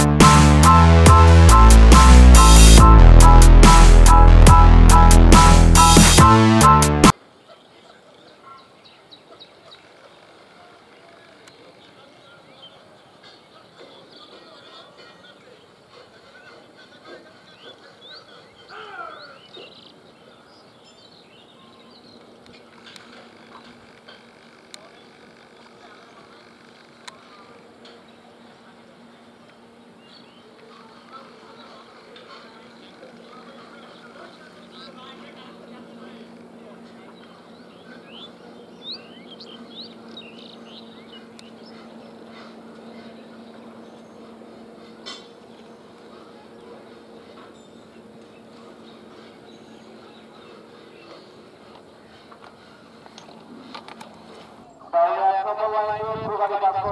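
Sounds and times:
birds chirping: 7.0 - 55.9
faint background noise: 7.1 - 56.9
steady low hum: 32.8 - 54.8.

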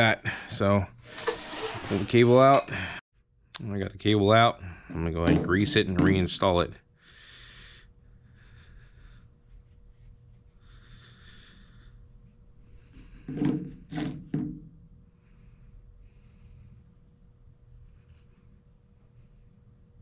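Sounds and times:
brush rubbing steel cable: 8.5 - 12.9.

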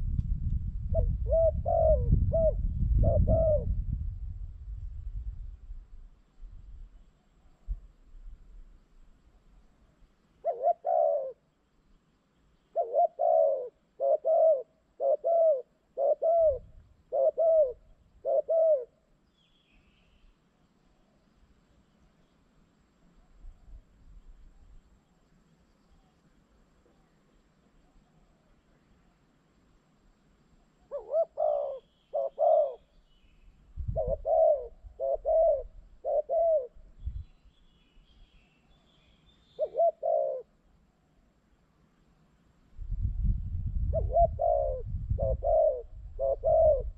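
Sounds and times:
dove cooing: 0.9 - 3.8, 10.4 - 11.5, 12.7 - 19.0, 30.8 - 32.9, 33.9 - 37.0, 39.6 - 40.6, 43.8 - 46.9.

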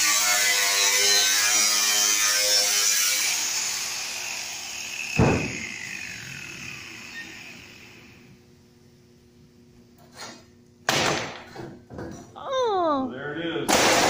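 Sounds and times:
angle grinder whining on metal: 0.0 - 8.4.

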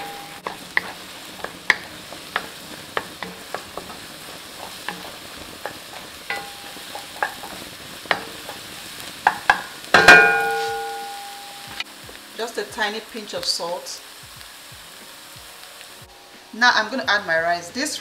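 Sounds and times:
spatula knocking on pan: 0.0 - 11.8
spatula tapping and scraping pan: 0.0 - 11.8
light sizzle in a wok: 0.0 - 18.0.

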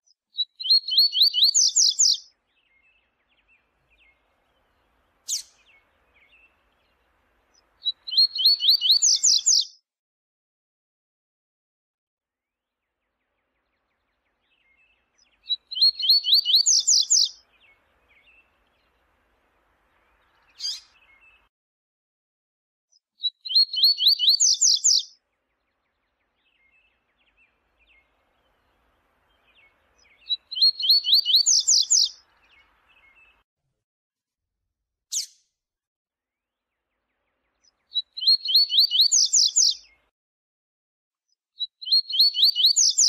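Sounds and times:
bird singing high rising notes: 0.4 - 9.7, 13.6 - 19.1, 19.9 - 21.5, 23.2 - 33.4, 37.6 - 40.0, 41.8 - 43.0.

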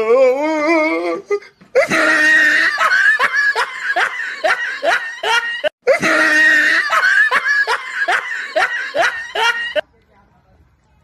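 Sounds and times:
looped laughter: 1.4 - 9.8.

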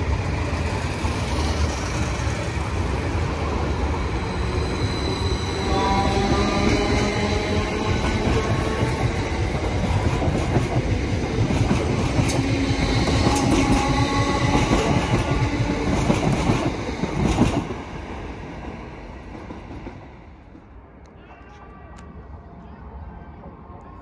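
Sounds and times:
train hum: 0.0 - 24.0
train wheels clattering on track: 5.8 - 20.7.

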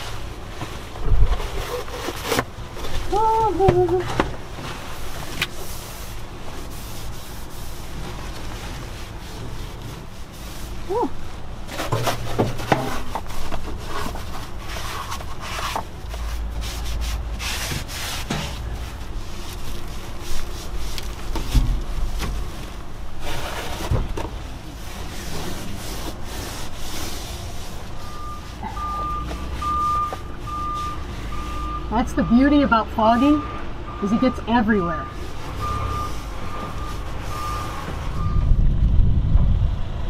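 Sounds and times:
paper wipe rubbing and rustling: 4.5 - 31.6
vehicle backup beeper: 27.9 - 38.6.

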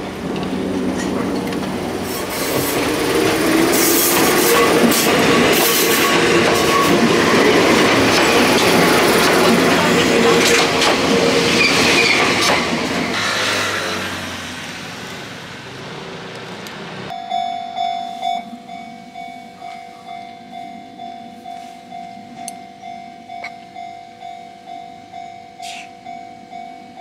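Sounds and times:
train rattling past: 0.0 - 17.1
level crossing bell ringing: 17.1 - 27.0.

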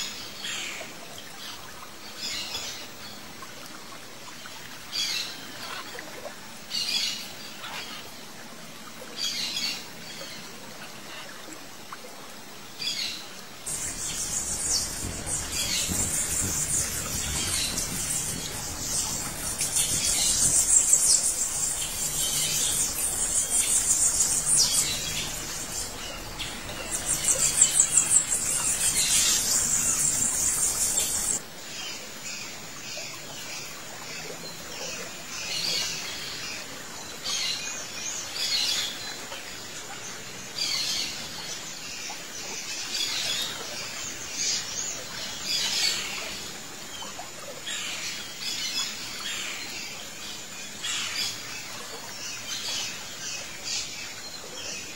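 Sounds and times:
small birds chirping: 13.6 - 31.4.

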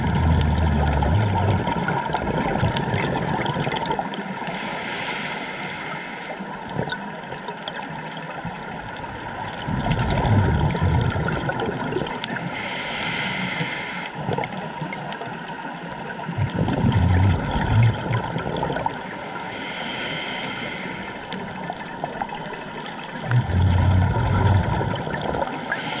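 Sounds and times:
exhaled bubbles rumbling: 0.0 - 4.2, 6.6 - 7.8, 8.4 - 12.3, 15.9 - 19.0, 21.3 - 25.7
regulator hiss: 12.3 - 14.1, 19.0 - 21.3.

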